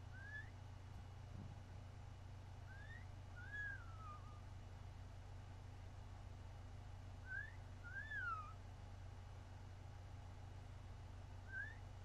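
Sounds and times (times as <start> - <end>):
starling whistling: 0.1 - 0.5, 2.7 - 4.4, 7.2 - 8.6, 11.5 - 11.8.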